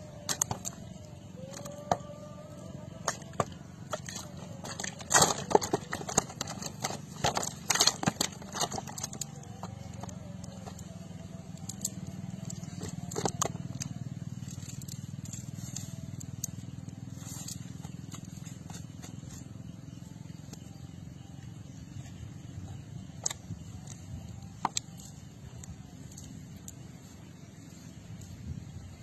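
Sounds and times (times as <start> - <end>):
nylon net rustling and clicking: 3.3 - 16.6.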